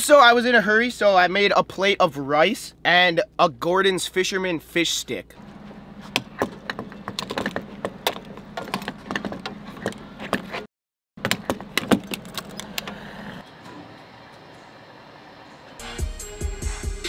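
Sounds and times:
fuel pump hum: 4.6s - 16.6s
fuel nozzle clicks and knocks: 6.0s - 10.5s, 11.2s - 13.0s.

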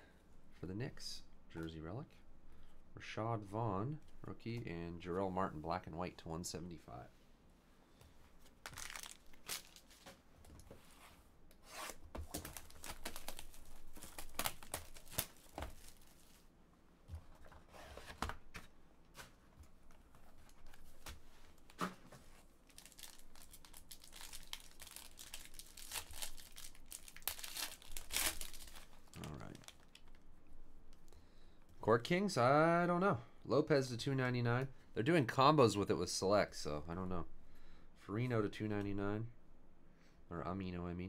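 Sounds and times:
packaging crinkling and tearing: 8.6s - 10.0s, 12.2s - 16.4s, 22.6s - 30.2s.

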